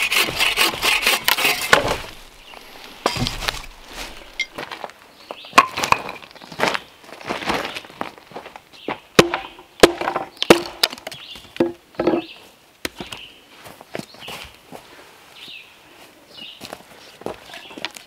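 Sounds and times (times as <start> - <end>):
wood chopping strikes: 0.3 - 2.2, 9.2 - 12.3
birds chirping: 2.2 - 5.6, 8.7 - 14.6, 15.4 - 16.7.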